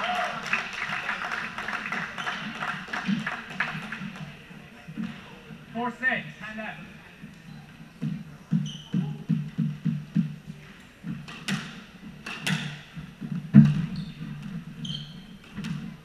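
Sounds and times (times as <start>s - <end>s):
shoes squeaking on floor: 2.1s - 3.2s, 7.2s - 16.0s
squash ball bouncing thumps: 8.0s - 10.4s, 11.0s - 16.0s.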